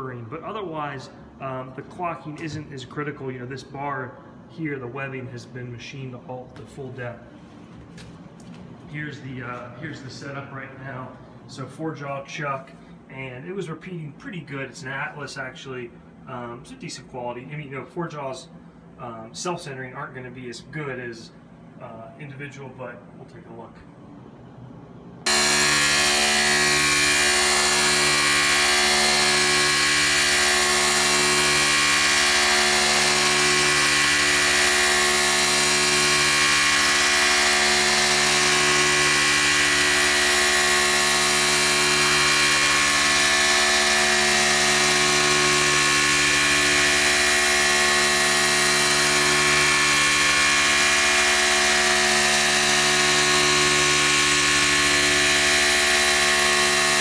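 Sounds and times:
milling machine cutting metal: 25.3s - 57.0s.

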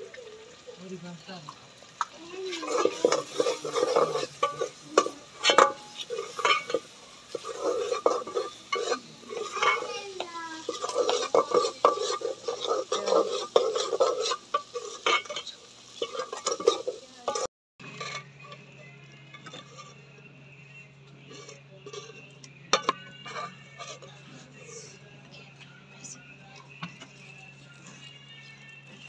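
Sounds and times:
light sizzle: 0.0s - 29.0s
ladle scraping metal pot: 2.5s - 20.2s, 21.2s - 25.8s
ladle clinking against pot: 2.6s - 9.9s, 10.6s - 18.5s, 21.4s - 24.1s.

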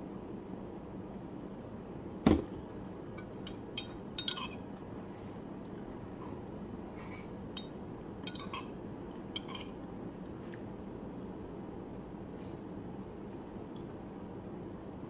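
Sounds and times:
spoon clinking against bowl: 3.2s - 4.6s, 7.6s - 8.8s.

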